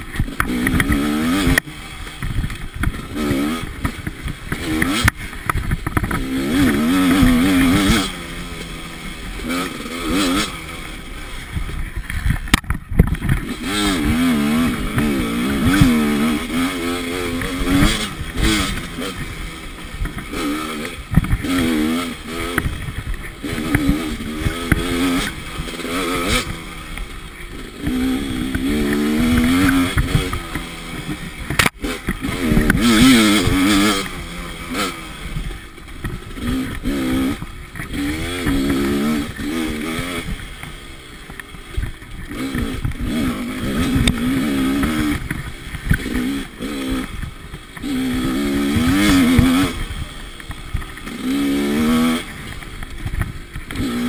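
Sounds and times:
bike clattering over bumps: 0.0 - 10.4
dirt bike engine revving: 0.0 - 54.0.

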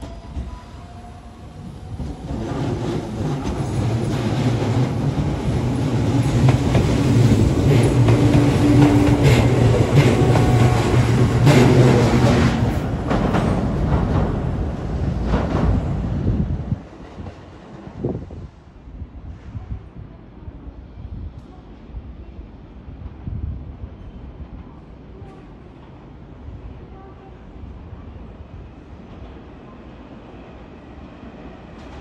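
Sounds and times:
train wheels rumbling: 0.0 - 18.7.

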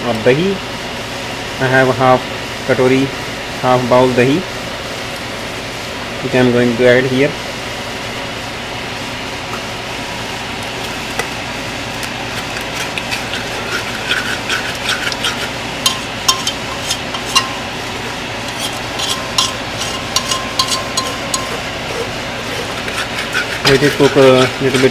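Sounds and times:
spoon scraping metal pot: 12.3 - 24.9.

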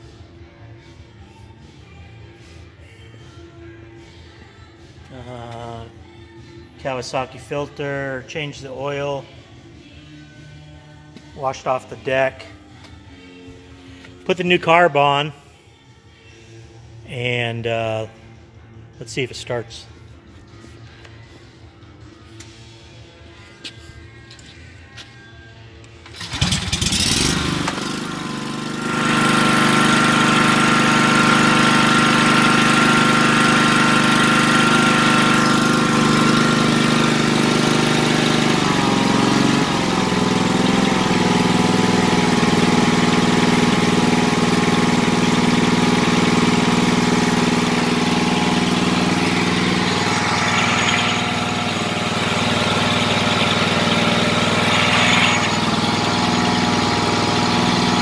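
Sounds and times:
mower engine cranking: 26.0 - 58.0
mower engine running: 26.1 - 58.0.

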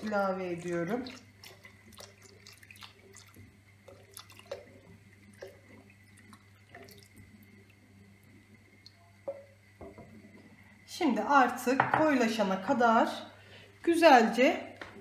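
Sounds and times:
liquid dripping and splashing: 0.0 - 9.5
low steady hum: 0.0 - 15.0.

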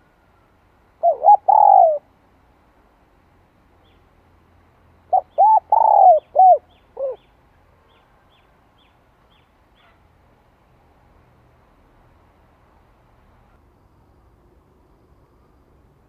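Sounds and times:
dove cooing: 1.0 - 2.1, 5.1 - 7.2.

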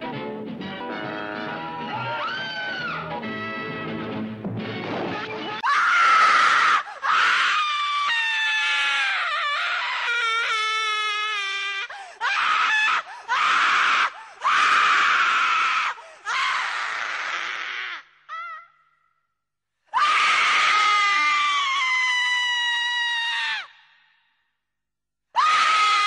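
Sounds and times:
woman screaming: 1.9 - 3.0, 5.6 - 18.8, 20.0 - 23.8, 25.4 - 26.0.

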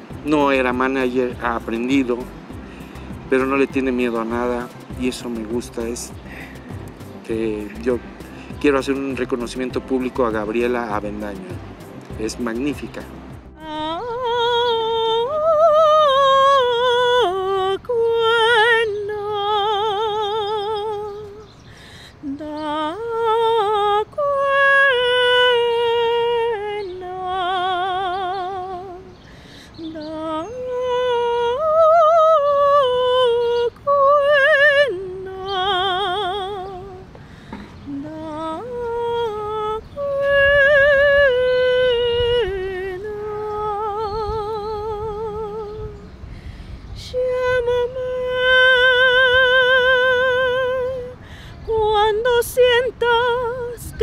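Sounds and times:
woman singing soprano: 13.5 - 54.0.

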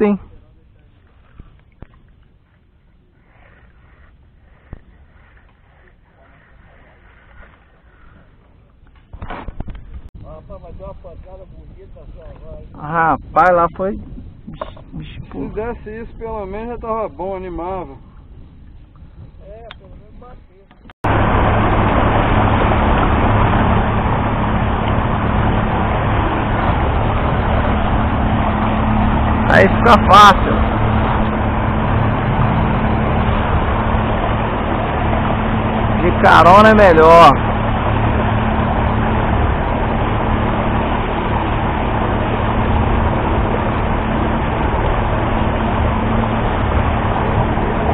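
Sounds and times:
outboard motor humming: 0.0 - 10.1, 11.2 - 47.9
churning wake water: 0.0 - 47.9
wind rushing: 21.0 - 47.9.

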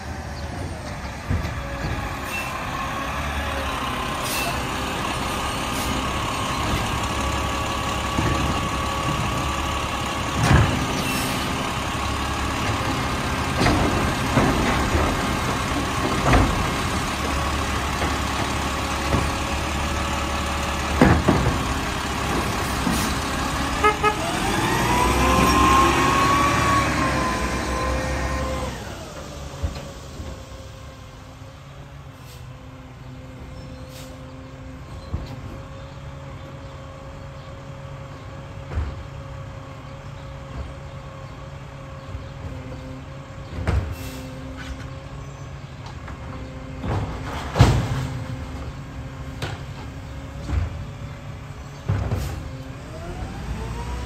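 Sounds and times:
diesel engine running: 0.0 - 54.0
carts clanking against hopper: 12.4 - 20.1, 20.8 - 25.7.

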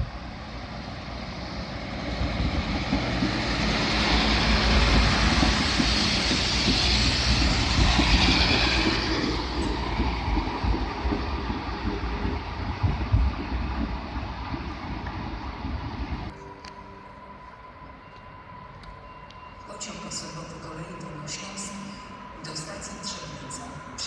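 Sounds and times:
train wheels rumbling on rails: 0.0 - 16.6
diesel railcar engine drone: 0.0 - 24.0.

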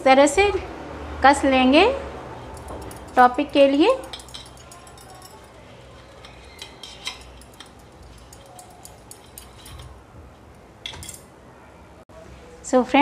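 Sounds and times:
grater clinking on steel plate: 2.4 - 10.0.

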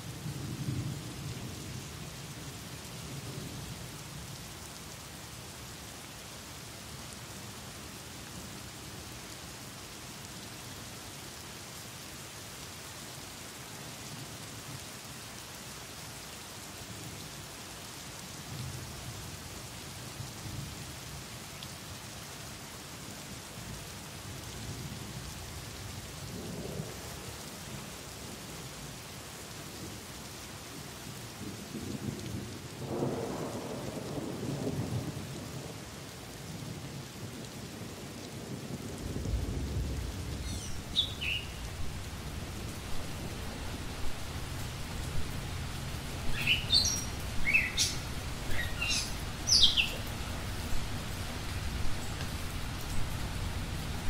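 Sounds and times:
rain falling on foliage: 0.0 - 54.0
thunder rumbling: 39.1 - 54.0
bird call: 40.4 - 41.7, 46.3 - 50.2.

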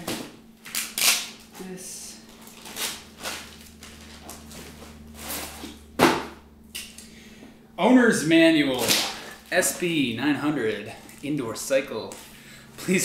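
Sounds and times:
plastic packaging rustling: 2.2 - 5.7, 8.7 - 10.0.

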